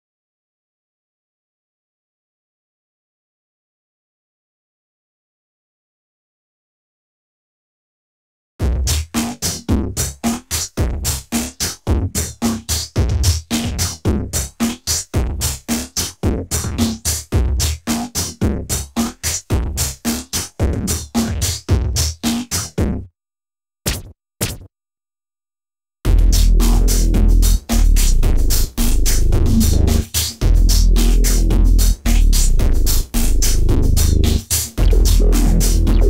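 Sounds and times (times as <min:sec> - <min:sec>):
drum machine pattern with bass: 0:08.6 - 0:23.1, 0:26.1 - 0:36.0
short synth stabs: 0:28.8 - 0:30.1.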